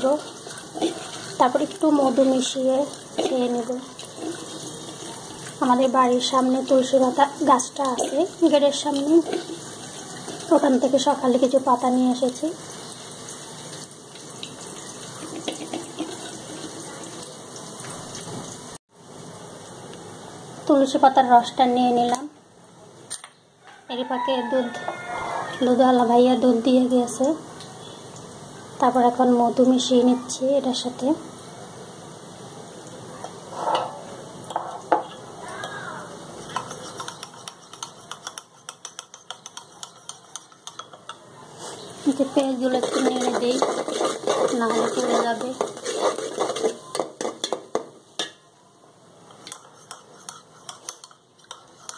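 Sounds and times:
spoon clinking against cup: 0:36.5 - 0:41.2.

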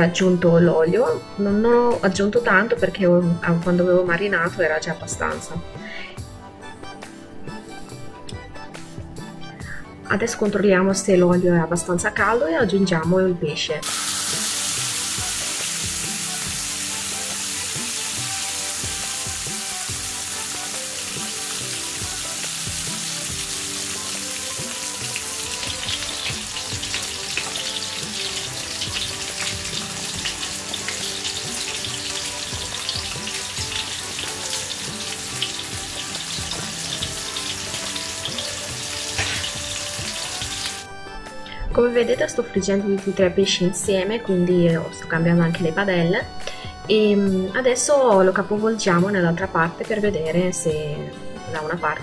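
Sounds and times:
fish sizzling in hot oil: 0:13.8 - 0:40.8.

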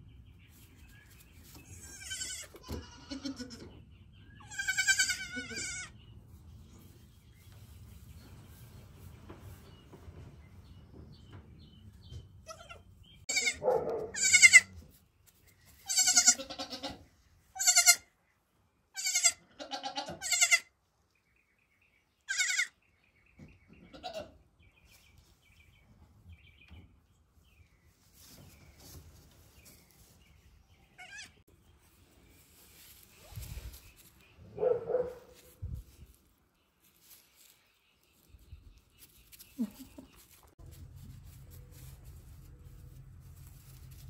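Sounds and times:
goat kids bleating: 0:01.6 - 0:06.0, 0:12.4 - 0:14.8, 0:15.8 - 0:18.1, 0:18.9 - 0:20.7, 0:22.3 - 0:22.8, 0:23.8 - 0:24.4, 0:31.0 - 0:31.4.

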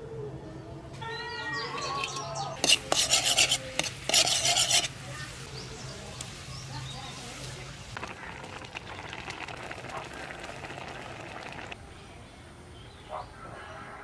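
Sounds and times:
birds chirping: 0:01.0 - 0:02.7
metal ladle scraping a wok: 0:01.8 - 0:05.1
garlic sizzling in hot oil: 0:02.6 - 0:11.8.

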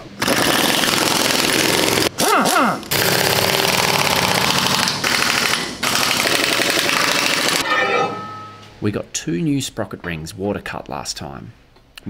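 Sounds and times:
impact wrench hammering: 0:02.9 - 0:08.7.

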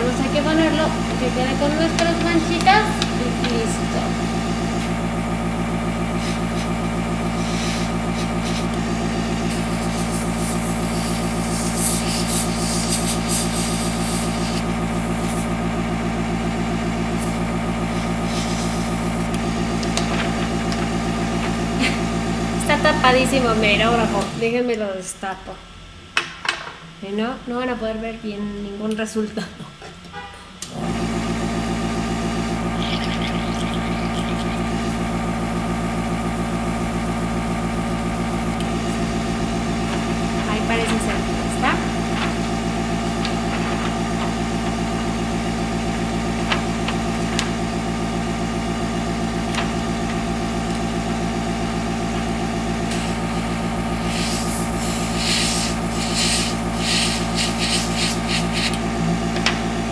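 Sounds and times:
airbrush compressor humming: 0:00.0 - 0:24.6, 0:30.6 - 0:59.9
airbrush hissing spurts: 0:06.0 - 0:15.6, 0:17.2 - 0:19.4, 0:32.6 - 0:35.8, 0:52.9 - 0:58.8.

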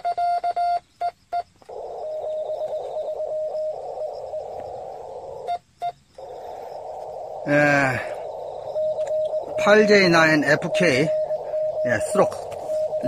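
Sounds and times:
morse code sidetone: 0:00.0 - 0:13.0
radio receiver hiss: 0:01.5 - 0:13.0
faint morse code reply: 0:07.5 - 0:13.0.

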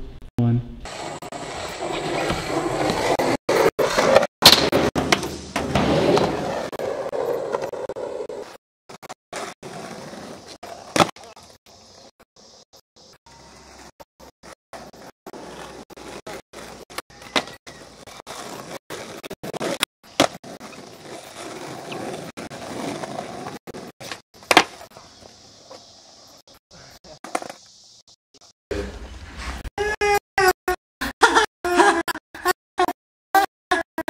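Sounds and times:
skateboard wheels rolling on asphalt: 0:00.8 - 0:28.0
skateboard clacking on ground: 0:10.4 - 0:11.5, 0:16.6 - 0:21.2, 0:23.7 - 0:25.0.

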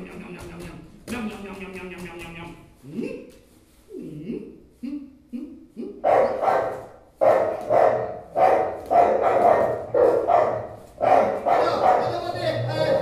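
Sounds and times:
dog barking: 0:06.0 - 0:12.4.

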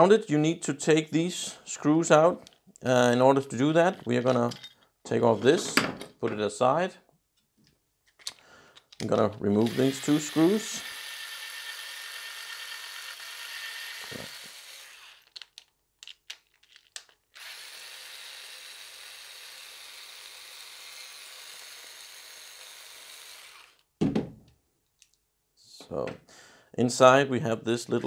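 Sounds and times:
electric screwdriver running: 0:09.6 - 0:15.4, 0:17.4 - 0:23.8
short thump: 0:24.0 - 0:24.4.

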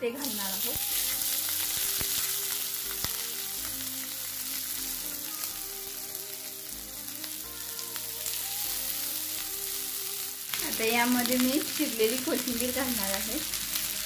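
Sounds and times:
background music: 0:00.0 - 0:14.0
rice sizzling in hot oil: 0:00.0 - 0:14.0.

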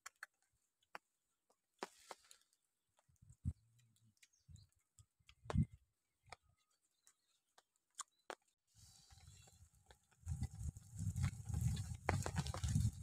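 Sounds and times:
soft chewing: 0:01.8 - 0:13.0.

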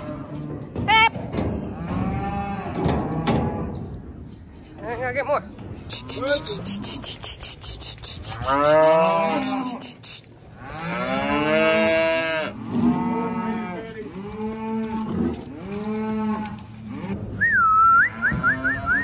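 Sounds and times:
fast even clicking: 0:05.9 - 0:10.3
cattle mooing: 0:05.9 - 0:17.2, 0:17.8 - 0:19.0.

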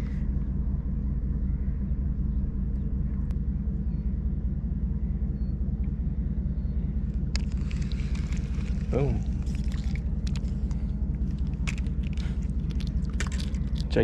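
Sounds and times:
low engine rumble: 0:00.0 - 0:14.0.

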